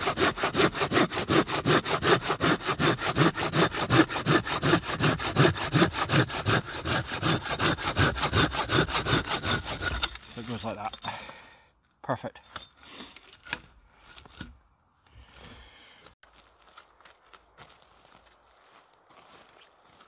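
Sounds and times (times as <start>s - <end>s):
hand saw cutting wood: 0.0s - 10.8s.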